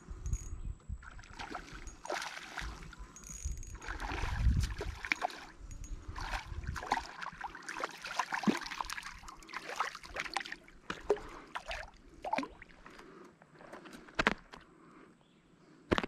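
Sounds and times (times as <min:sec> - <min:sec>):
fish splashing at water surface: 0:01.4 - 0:02.9, 0:06.1 - 0:12.8.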